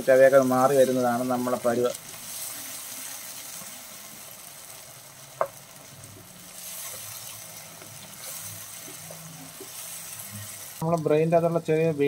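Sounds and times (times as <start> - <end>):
vegetables sizzling in oil: 0.0 - 12.0
wooden spatula stirring: 5.4 - 10.8.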